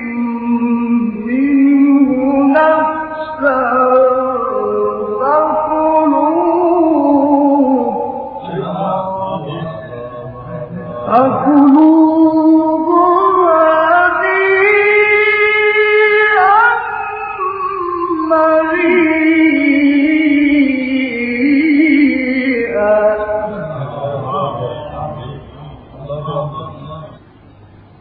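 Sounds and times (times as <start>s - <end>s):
man reciting melodically: 0.0s - 27.3s.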